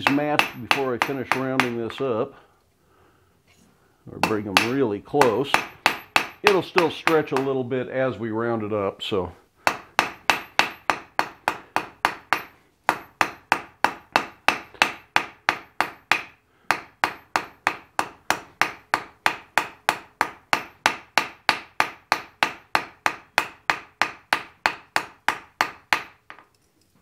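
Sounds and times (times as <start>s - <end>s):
hammer ringing on hot steel: 0.0s - 1.8s, 9.7s - 26.1s.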